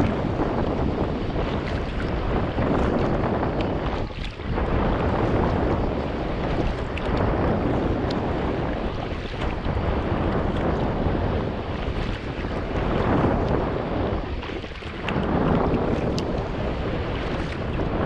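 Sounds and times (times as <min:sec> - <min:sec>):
water sloshing around kayak: 0:00.0 - 0:18.0
wind buffeting microphone: 0:00.0 - 0:18.0
drips and splashes: 0:01.4 - 0:04.7, 0:06.5 - 0:07.3, 0:14.4 - 0:16.4, 0:17.2 - 0:17.9.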